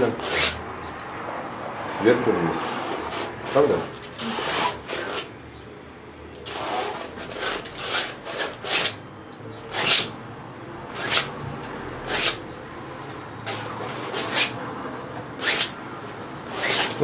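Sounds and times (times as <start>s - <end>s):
palette knife scraping paint: 0.0s - 0.6s, 2.6s - 5.3s.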